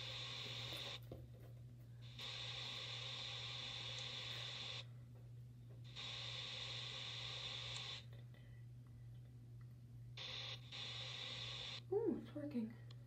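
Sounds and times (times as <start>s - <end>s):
hiss: 2.2s - 4.8s, 5.9s - 8.0s, 10.2s - 11.8s.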